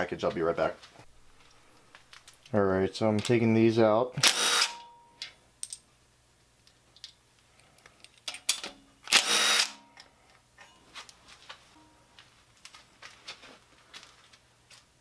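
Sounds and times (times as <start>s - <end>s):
impact driver spinning: 9.1s - 9.9s.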